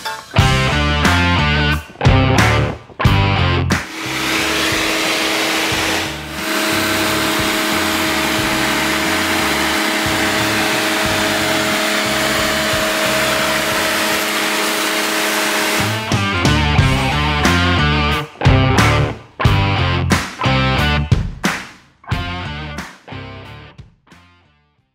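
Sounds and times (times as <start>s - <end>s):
rock music: 0.0s - 24.6s
pressure washer running: 3.8s - 17.2s.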